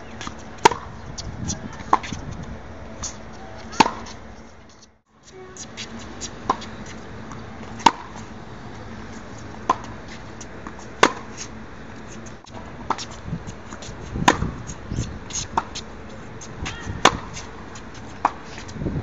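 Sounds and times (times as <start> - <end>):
steady background noise: 0.0 - 19.0
tennis balls struck by racquets: 0.1 - 0.9, 3.4 - 4.2, 5.5 - 11.4, 12.2 - 18.5.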